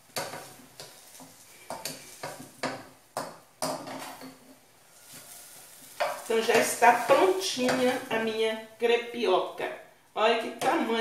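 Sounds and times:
metal spatula tapping a frying pan: 0.1s - 4.4s, 6.0s - 8.1s.

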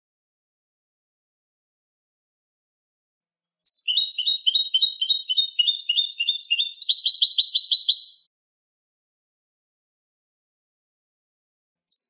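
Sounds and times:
goldfinch twittering song: 3.6s - 8.3s.

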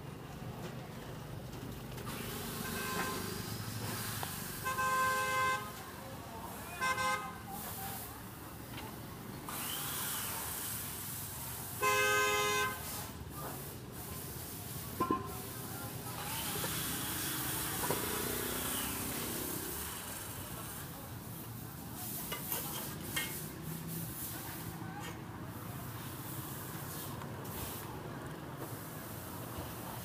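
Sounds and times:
street background noise: 0.0s - 30.0s
vehicle horn honking: 2.5s - 3.4s, 4.6s - 5.8s, 6.8s - 7.4s, 11.8s - 13.0s.

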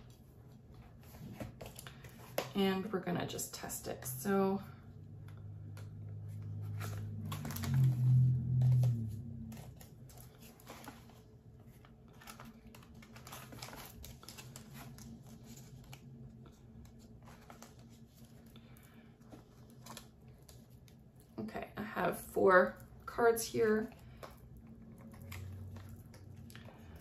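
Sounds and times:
plastic cards clicking and rustling: 0.9s - 2.6s, 5.3s - 21.2s, 23.8s - 27.0s
low hum: 4.3s - 11.0s.

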